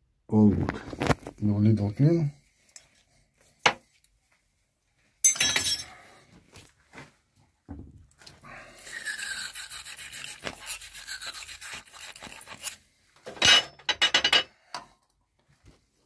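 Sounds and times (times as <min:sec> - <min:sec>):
metallic clinks and knocks: 0:05.2 - 0:06.0
scrubbing on metal: 0:08.9 - 0:12.8.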